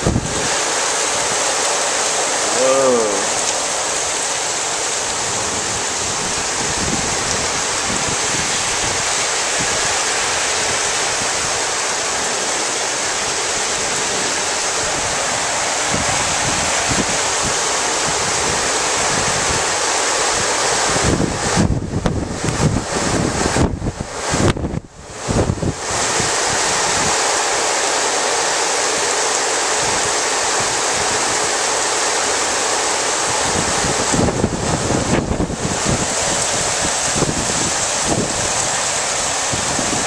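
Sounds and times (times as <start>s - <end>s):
wind buffeting microphone: 0.0s - 0.6s, 5.0s - 12.4s, 13.2s - 19.8s, 20.4s - 27.2s, 33.2s - 40.0s
heavy rain pouring: 0.0s - 40.0s
water streaming off roof edge: 0.0s - 40.0s.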